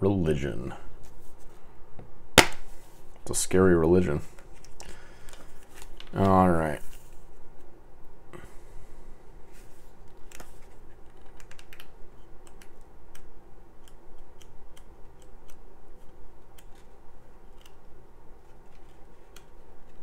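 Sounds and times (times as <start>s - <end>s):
booklet pages flipping: 4.5s - 7.3s, 10.0s - 11.9s, 16.0s - 17.8s, 18.4s - 20.0s.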